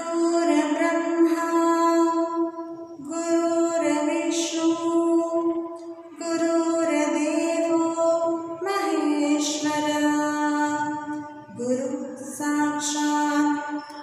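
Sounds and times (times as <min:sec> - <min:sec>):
woman chanting a prayer: 0:00.0 - 0:14.0.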